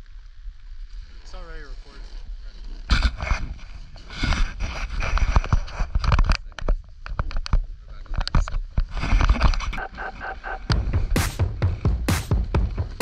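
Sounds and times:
steady rushing noise: 9.8 - 13.0.

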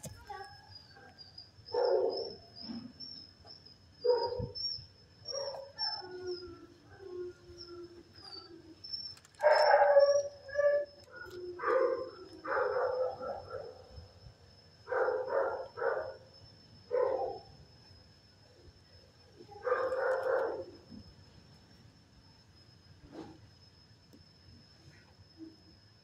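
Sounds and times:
dogs barking: 1.7 - 2.4, 4.0 - 4.6, 9.4 - 13.8, 14.9 - 16.2, 16.9 - 17.4, 19.6 - 20.7
dogs howling: 5.3 - 13.9, 19.4 - 20.7.

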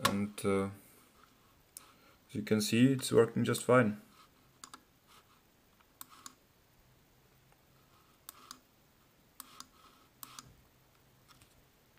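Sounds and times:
computer mouse clicking: 4.6 - 4.8, 5.9 - 6.4, 8.2 - 8.7, 9.4 - 10.6.

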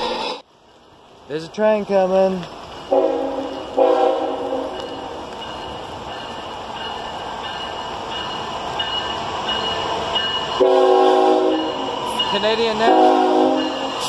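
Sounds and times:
freight train rumble: 0.0 - 14.0
locomotive air horn: 2.9 - 5.0, 10.6 - 11.8, 12.9 - 13.9.

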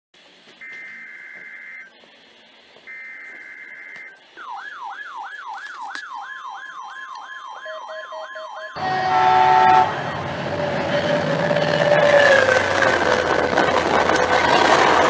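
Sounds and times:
short beeps: 0.6 - 1.9, 2.9 - 4.6
electronic siren yelp: 2.9 - 12.5
train horn blast: 8.8 - 12.5
diesel train running past: 8.8 - 15.0.

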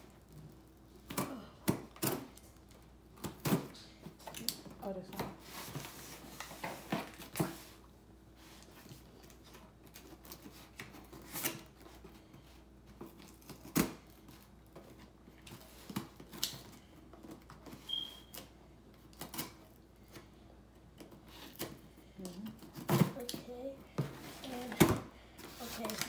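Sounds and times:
brief high squeak: 17.9 - 18.3.

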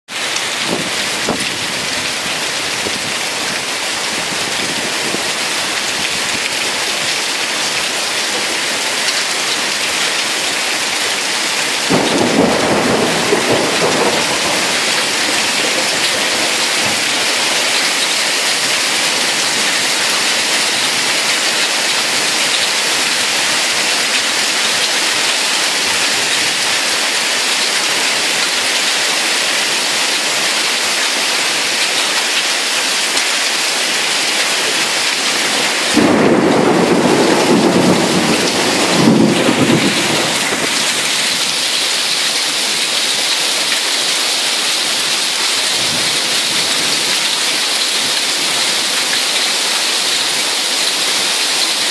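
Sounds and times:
heavy rain pouring: 0.1 - 51.9
thunder rumbling: 11.8 - 20.0, 35.4 - 41.6.

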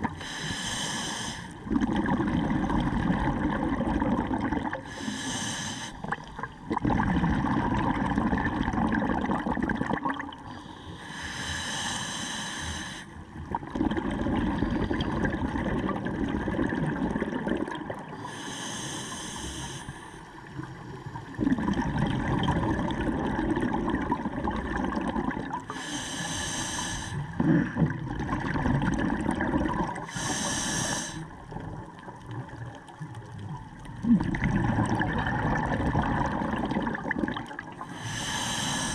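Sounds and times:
exhaust bubbles gurgling: 0.0 - 0.2, 1.6 - 4.9, 6.0 - 10.6, 13.2 - 18.2, 20.3 - 25.7, 27.2 - 30.4, 31.2 - 38.9
regulator inhalation hiss: 0.2 - 1.6, 4.9 - 6.0, 10.7 - 13.1, 18.2 - 20.2, 25.7 - 27.2, 30.1 - 31.3, 37.9 - 38.9.

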